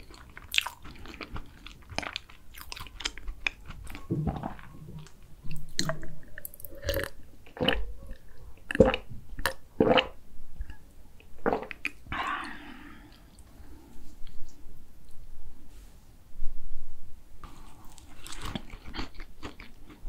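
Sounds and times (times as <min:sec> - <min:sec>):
person gulping a drink: 0:03.0 - 0:13.4.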